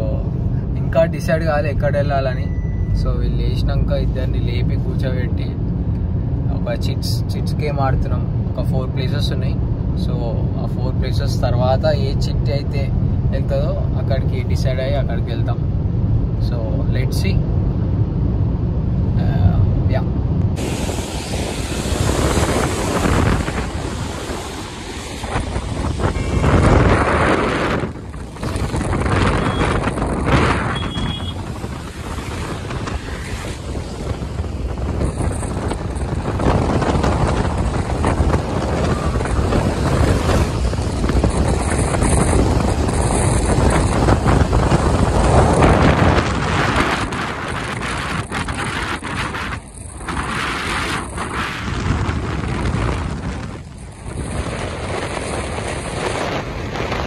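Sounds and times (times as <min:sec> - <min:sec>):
rushing wind: 0:00.0 - 0:57.0
wind buffeting microphone: 0:17.2 - 0:57.0
car tyres on wet road: 0:17.4 - 0:57.0.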